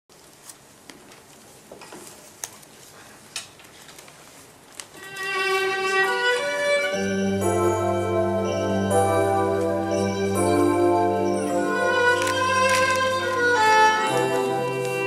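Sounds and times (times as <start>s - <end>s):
violin playing slow bowed notes: 5.0s - 15.0s.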